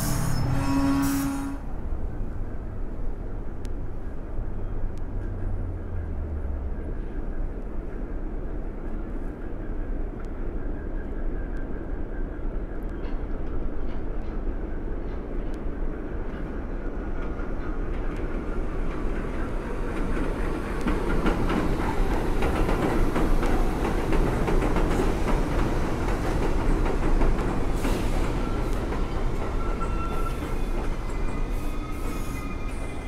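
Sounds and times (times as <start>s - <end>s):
thin wheel squeal: 0.0s - 1.6s
train rumble: 0.0s - 33.0s.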